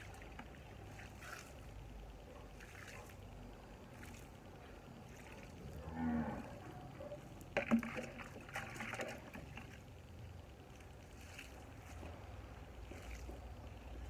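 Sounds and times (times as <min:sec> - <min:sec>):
water splashing in bucket: 0:00.0 - 0:01.9, 0:02.5 - 0:03.3, 0:07.4 - 0:14.0
plastic watering can clattering: 0:07.6 - 0:09.3.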